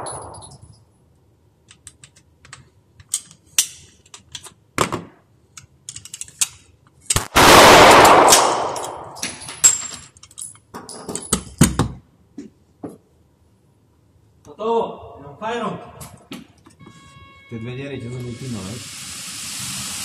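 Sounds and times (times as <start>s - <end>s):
pistol handling clicks and knocks: 1.6s - 7.3s, 8.4s - 12.0s
loud pistol shot: 7.2s - 9.2s.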